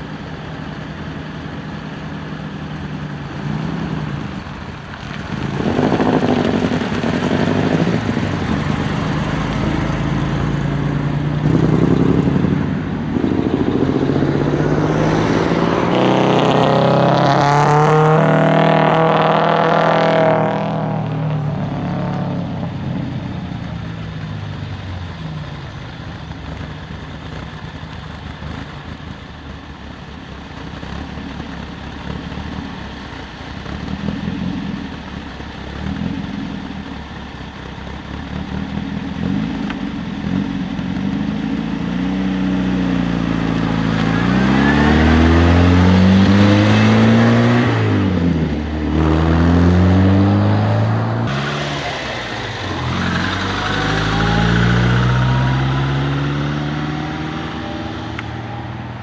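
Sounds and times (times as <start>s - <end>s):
racing car engine pulling away: 3.3s - 25.7s, 37.6s - 59.0s
sports car engine passing by: 5.0s - 24.7s, 38.2s - 59.0s.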